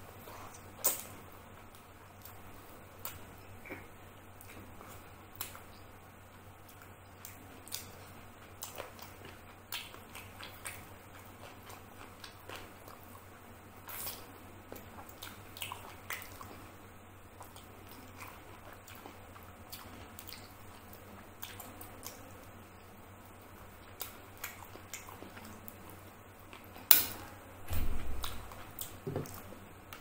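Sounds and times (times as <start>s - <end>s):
wet chewing smacks: 6.6s - 16.7s, 23.8s - 26.8s.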